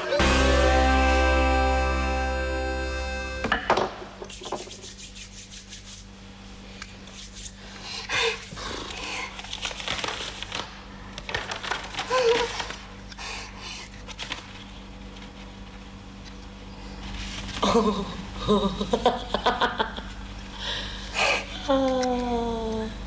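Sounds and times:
paper rustling: 8.9 - 13.1, 13.8 - 15.6, 17.1 - 17.7.

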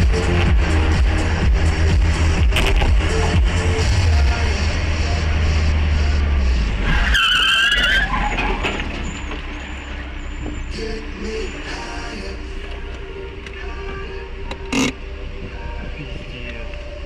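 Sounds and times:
low rumble: 0.0 - 7.1
car tyres squealing in a skid: 6.7 - 10.8.

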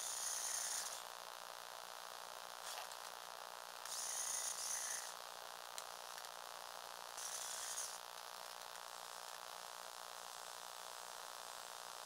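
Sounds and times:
small electric motor whining: 0.0 - 1.1, 3.8 - 5.2, 7.1 - 8.0.

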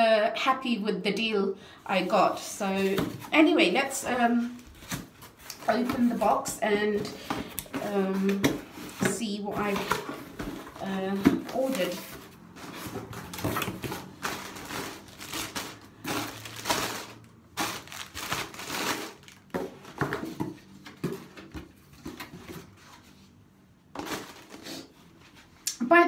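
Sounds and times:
packaging crinkling and rustling: 6.9 - 21.3, 24.0 - 24.8.

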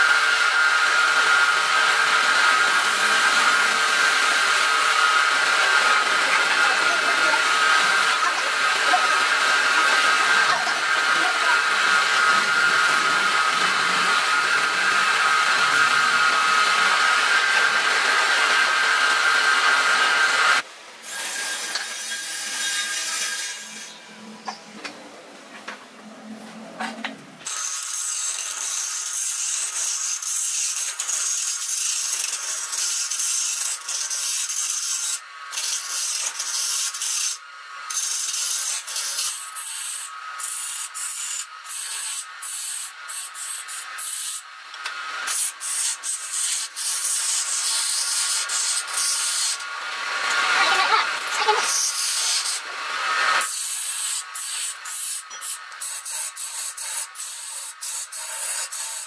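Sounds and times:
chisel shaving wood on lathe: 0.1 - 24.0.

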